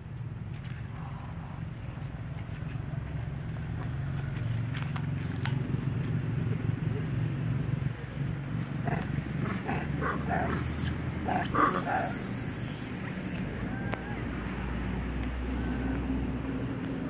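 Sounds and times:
baby monkey squeaking and screaming: 0:10.3 - 0:13.9.

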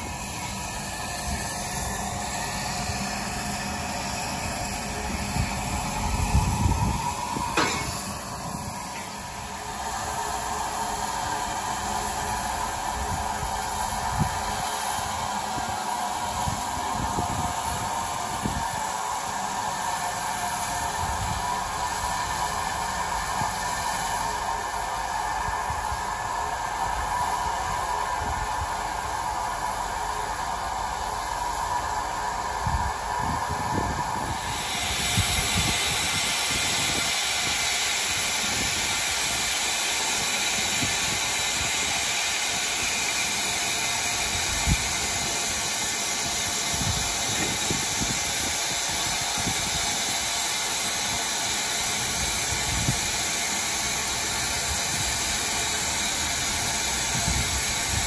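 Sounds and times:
steam locomotive hissing steam: 0:00.0 - 0:58.0.

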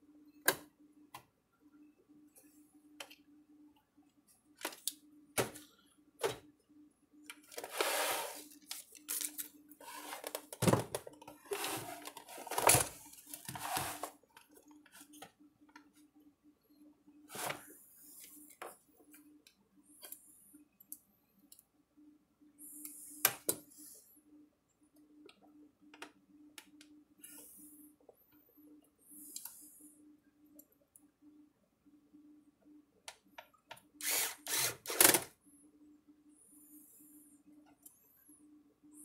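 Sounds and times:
faint steady hum: 0:00.0 - 0:39.0.

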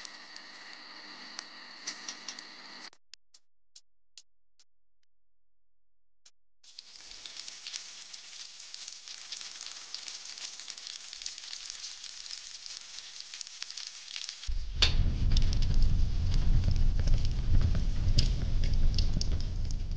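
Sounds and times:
meat sizzling in a frying pan: 0:06.7 - 0:14.5
loud low rumble: 0:14.5 - 0:19.9.

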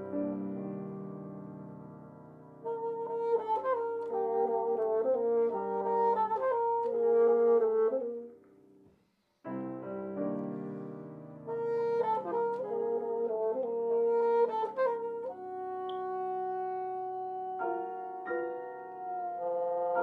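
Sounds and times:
piano: 0:00.0 - 0:20.0
bassoons playing: 0:02.6 - 0:08.4, 0:11.4 - 0:20.0.

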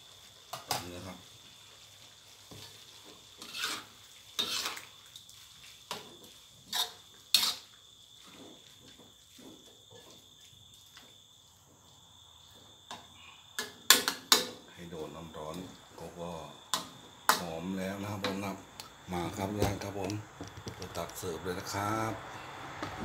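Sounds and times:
metal spatula scraping a wok: 0:02.5 - 0:04.9, 0:05.5 - 0:10.5.

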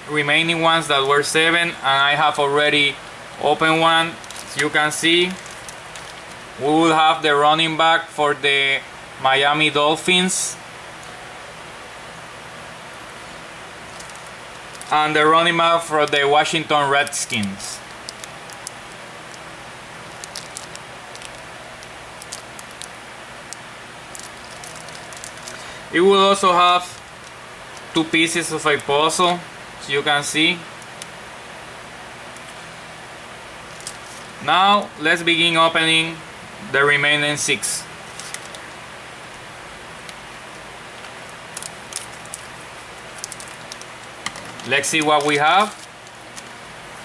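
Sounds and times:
steady background hiss: 0:00.0 - 0:47.0
plastic bag crinkling: 0:03.6 - 0:06.6, 0:13.2 - 0:29.1, 0:33.7 - 0:34.4, 0:38.0 - 0:38.8, 0:40.0 - 0:47.0.

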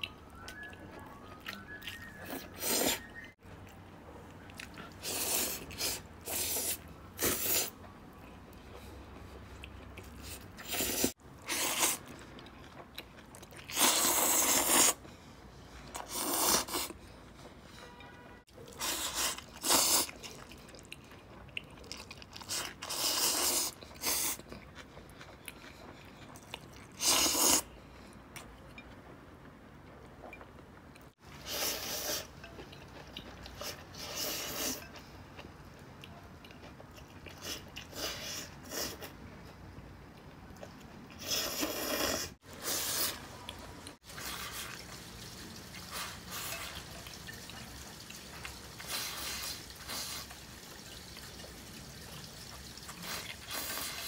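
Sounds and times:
person slurping noodles: 0:02.6 - 0:03.1, 0:05.0 - 0:07.8, 0:10.2 - 0:12.0, 0:13.7 - 0:15.0, 0:16.0 - 0:17.0, 0:18.8 - 0:20.1, 0:27.0 - 0:27.7, 0:41.2 - 0:43.2
person chewing: 0:04.4 - 0:15.2, 0:15.9 - 0:17.0, 0:18.6 - 0:29.0, 0:30.2 - 0:39.6, 0:40.2 - 0:45.0.

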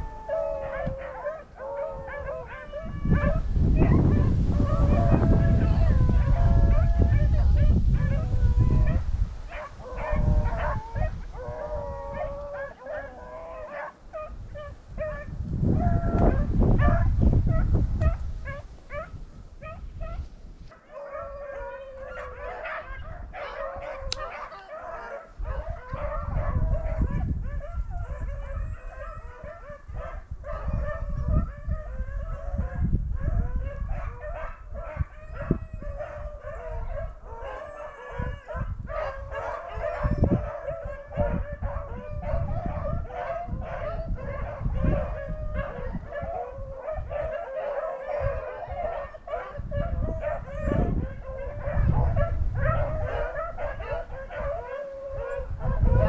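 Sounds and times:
hounds baying: 0:00.0 - 0:56.0
wind buffeting microphone: 0:00.0 - 0:56.0.

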